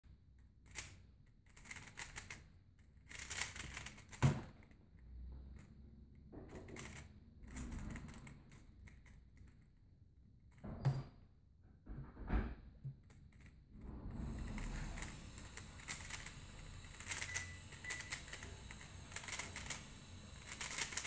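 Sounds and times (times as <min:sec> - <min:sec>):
speed cube plastic clicking: 0:00.6 - 0:04.8, 0:06.5 - 0:09.7, 0:14.3 - 0:21.0.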